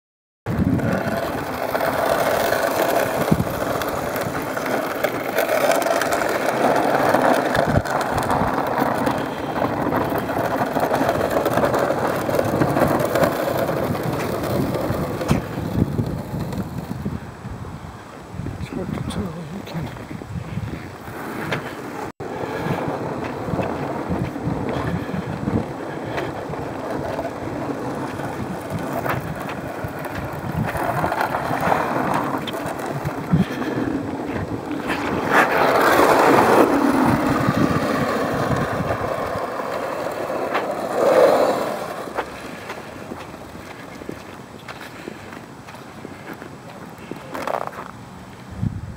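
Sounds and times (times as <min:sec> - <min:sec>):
wind on microphone: 0:00.5 - 0:21.7, 0:22.3 - 0:40.6, 0:48.4 - 0:48.9.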